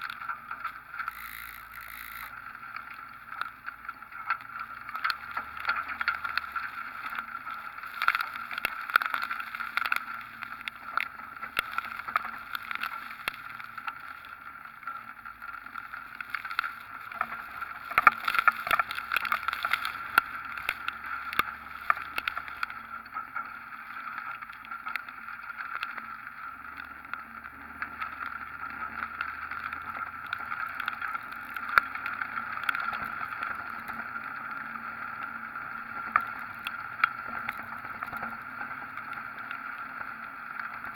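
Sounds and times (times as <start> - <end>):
raindrops striking camera: 0.0 - 40.9.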